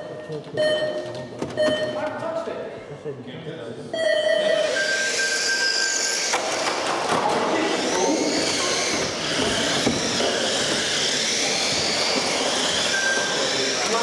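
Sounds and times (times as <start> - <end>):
rc car motors whining: 4.5 - 14.0.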